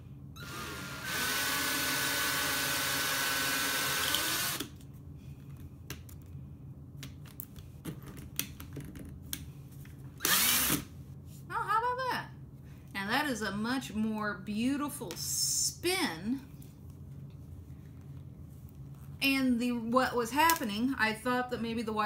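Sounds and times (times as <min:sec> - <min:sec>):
cordless drill whining: 0:00.4 - 0:04.8, 0:10.2 - 0:10.9.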